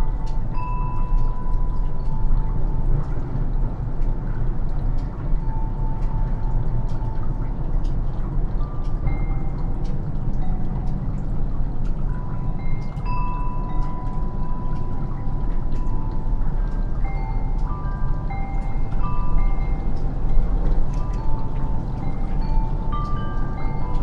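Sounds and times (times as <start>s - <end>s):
melting snow dripping: 0.0s - 24.0s
steady low rumble: 0.0s - 24.0s
wind chimes ringing: 0.2s - 2.3s, 8.6s - 9.7s, 12.1s - 24.0s.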